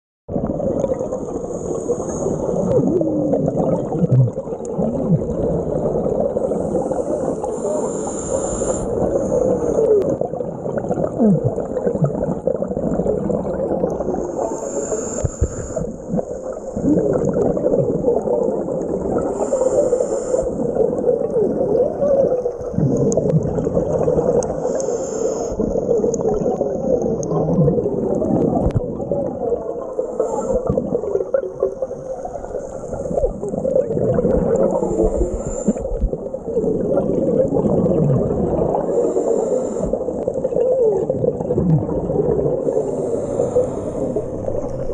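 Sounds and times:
muffled underwater noise: 0:01.0 - 0:12.7, 0:13.6 - 0:44.9
regulator exhaust bubbles gurgling: 0:33.2 - 0:35.2, 0:35.8 - 0:38.9, 0:40.1 - 0:44.9.

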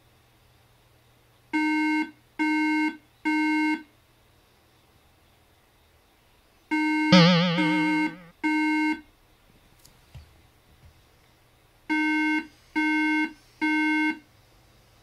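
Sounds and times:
computer startup beeps: 0:07.1 - 0:08.3
warbling sound: 0:07.1 - 0:08.3.

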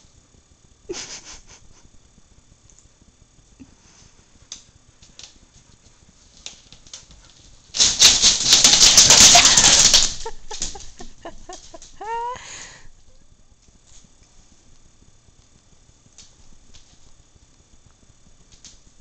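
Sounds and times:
dog scrabbling: 0:06.4 - 0:12.2.

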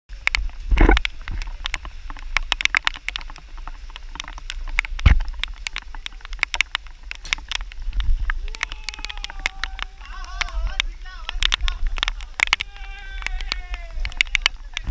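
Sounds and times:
low wind rumble: 0:00.1 - 0:14.9
raindrops tapping on camera: 0:00.1 - 0:14.9
person speaking: 0:08.4 - 0:14.9.

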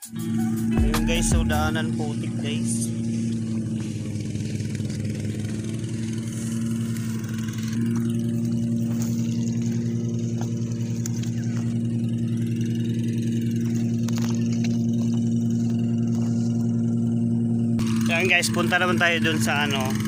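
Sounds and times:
small engine running: 0:00.0 - 0:20.0.

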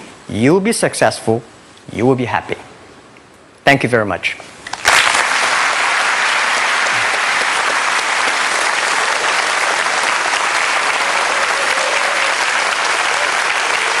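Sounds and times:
audience applauding: 0:04.7 - 0:14.0.

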